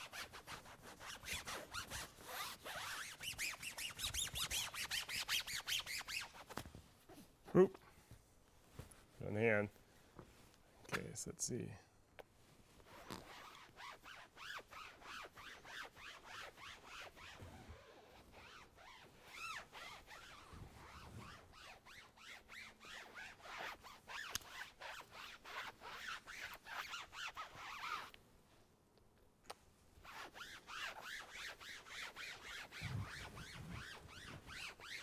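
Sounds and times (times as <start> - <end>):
foam pad rubbing vinyl: 0.0 - 6.6, 12.8 - 28.1, 30.0 - 35.0.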